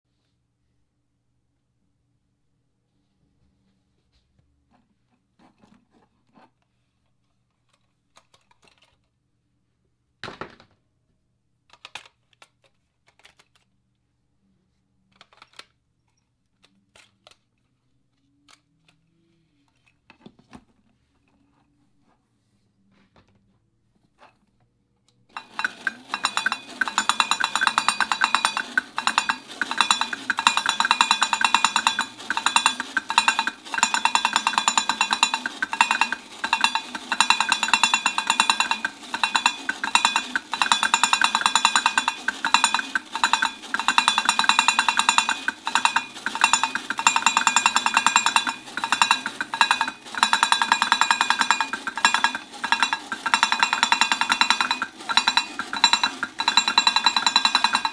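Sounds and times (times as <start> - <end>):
toy drumming on metal bongos: 25.3 - 57.9.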